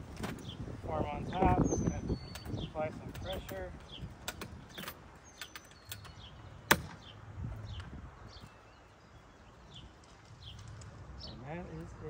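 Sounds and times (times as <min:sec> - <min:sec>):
tent handling clicks and knocks: 0:00.0 - 0:00.5, 0:02.2 - 0:07.1
birds chirping: 0:00.0 - 0:12.0.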